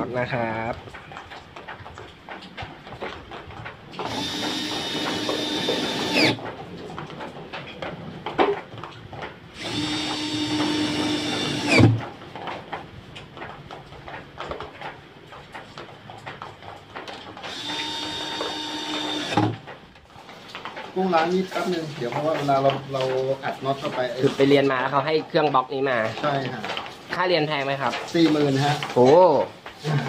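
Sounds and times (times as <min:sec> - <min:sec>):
cordless drill whining: 0:04.0 - 0:06.4, 0:09.6 - 0:11.9, 0:17.5 - 0:19.6.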